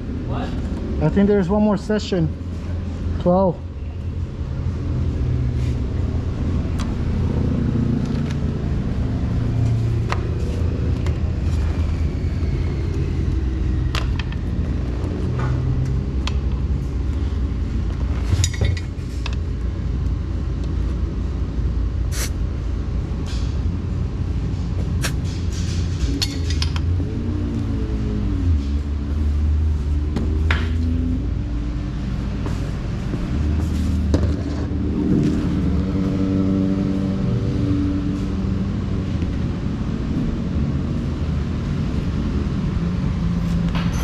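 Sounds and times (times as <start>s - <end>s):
car engine and road rumble: 0.0s - 44.0s.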